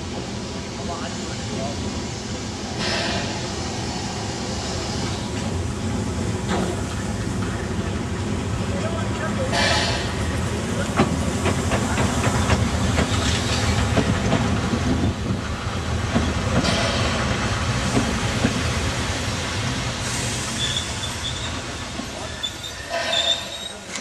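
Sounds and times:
hissing steam: 0.0s - 24.0s
steady low rumble of train: 0.0s - 24.0s
train wheels clicking over rail joints: 2.7s - 3.6s, 6.2s - 24.0s.

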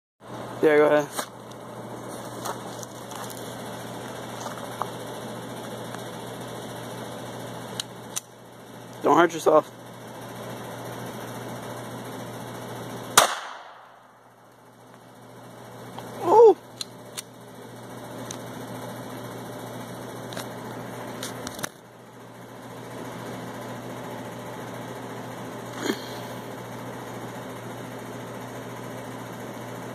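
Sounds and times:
steady low hum: 0.2s - 29.9s
pistol shot: 13.2s - 14.0s.

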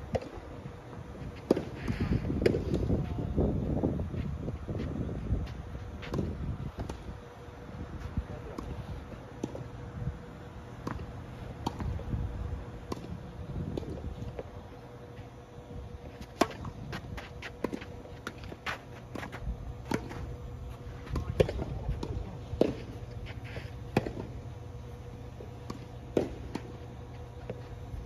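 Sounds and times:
steady low hum: 0.0s - 28.0s
tennis ball bouncing: 10.8s - 12.0s, 23.9s - 24.4s
racket hitting tennis ball: 25.6s - 26.8s.

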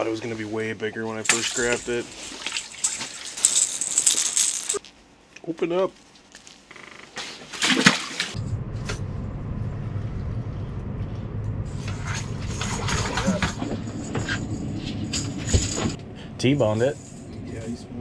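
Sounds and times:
fishing gear clicks and rattles: 1.2s - 4.9s, 11.9s - 14.5s
fish splashing in water: 1.3s - 3.4s, 7.5s - 8.4s
low machine hum: 8.4s - 18.0s.

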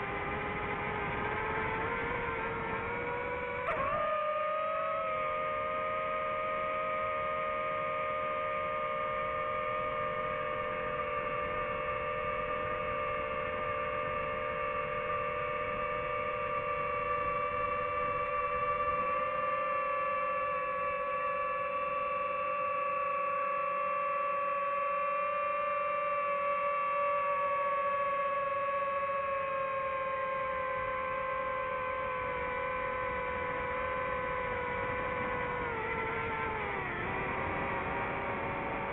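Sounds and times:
drone propellers whining: 0.0s - 38.9s.

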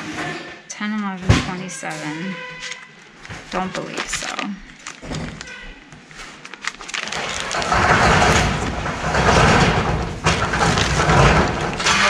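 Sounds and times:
purse rustling: 2.6s - 7.9s
plastic bag crinkling: 2.6s - 12.0s.

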